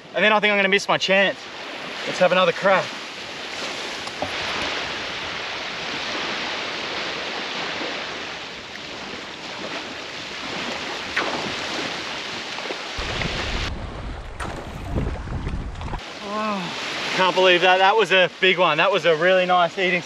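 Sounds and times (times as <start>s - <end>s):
small waves lapping on sand: 1.3s - 15.2s, 16.0s - 20.0s
wind buffeting microphone: 13.0s - 16.0s.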